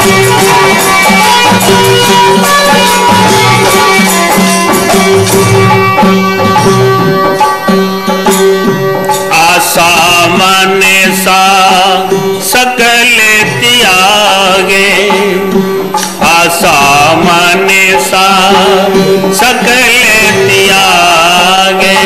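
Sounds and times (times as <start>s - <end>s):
wavering melody with vibrato: 0.0s - 22.0s.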